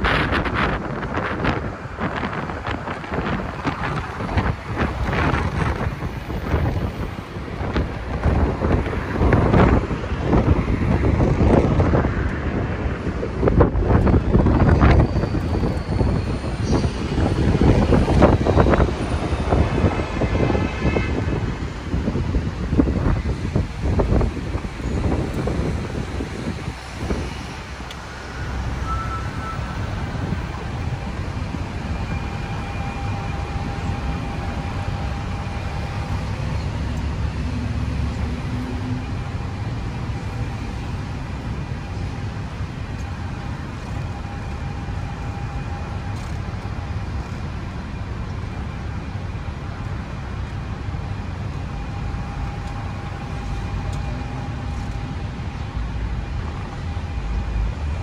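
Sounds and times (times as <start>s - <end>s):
bus engine and road rumble: 0.0s - 58.0s
faint whine: 24.6s - 58.0s.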